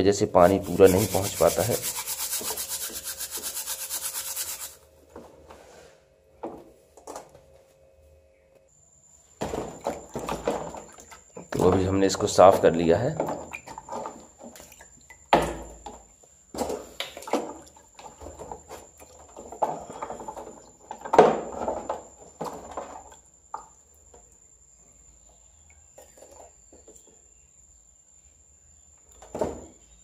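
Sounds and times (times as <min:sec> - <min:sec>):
water sloshing in a tub: 0:09.5 - 0:21.1.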